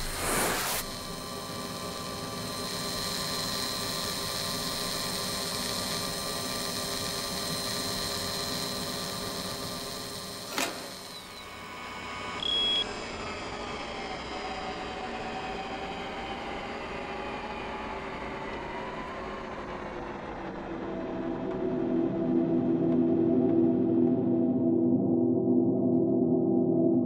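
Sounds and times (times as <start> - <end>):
electronic hum with high whine: 0.0 - 18.8
sharp click: 10.5 - 11.2
loud high beep: 12.4 - 12.9.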